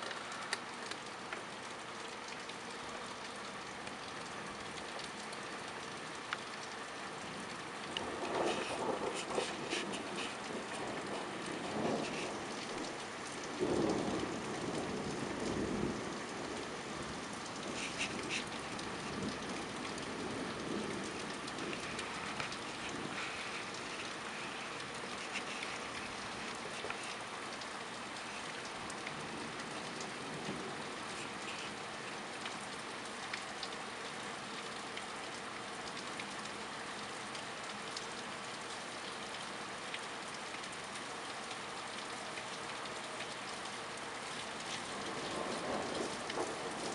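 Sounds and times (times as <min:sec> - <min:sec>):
steady rain falling: 0:00.0 - 0:46.9
thunder rumbling: 0:07.4 - 0:26.8, 0:44.9 - 0:46.9.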